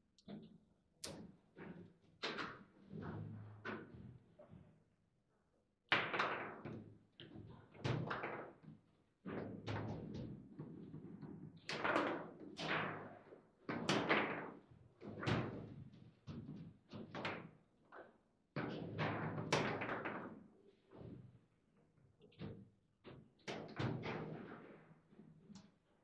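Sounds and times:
foosball ball knocks and clacks: 0:01.2 - 0:04.5, 0:05.9 - 0:08.7, 0:09.3 - 0:17.6, 0:18.6 - 0:21.2.

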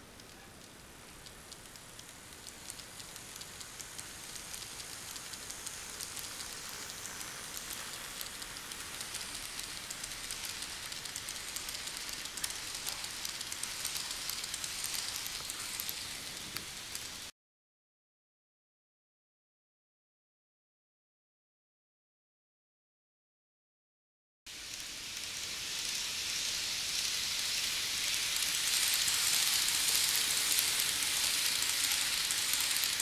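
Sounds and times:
model train wheels hissing: 0:00.0 - 0:17.3, 0:24.5 - 0:33.0.

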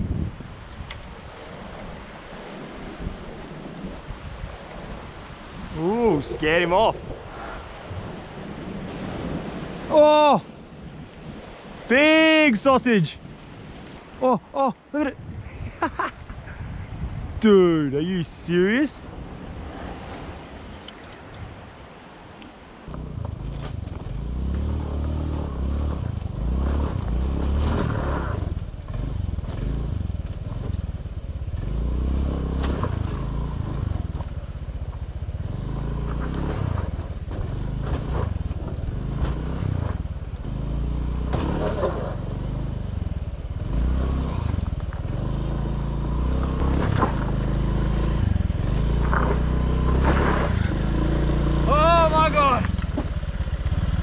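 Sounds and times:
bike rattling over rough ground: 0:23.0 - 0:45.8, 0:46.4 - 0:50.8, 0:52.6 - 0:54.0
motor scooter engine revving: 0:35.3 - 0:51.8, 0:52.7 - 0:54.0.

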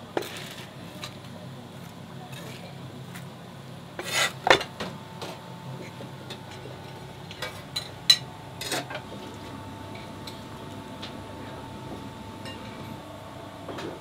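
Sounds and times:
steady low hum: 0:02.8 - 0:14.0
dishes and utensils clattering: 0:12.4 - 0:13.0.

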